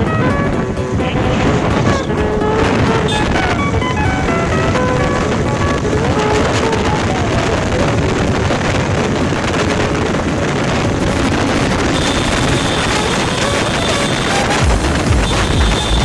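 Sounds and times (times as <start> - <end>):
faint melody: 0.0 - 8.6
motorcycle road noise: 0.0 - 16.0
wind buffeting microphone: 0.0 - 16.0.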